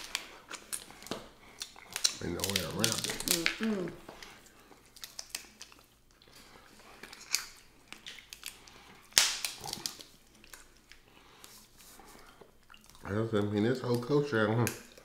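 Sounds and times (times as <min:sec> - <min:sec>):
crab shells cracking: 0:00.0 - 0:03.6, 0:04.8 - 0:06.2, 0:06.9 - 0:11.1.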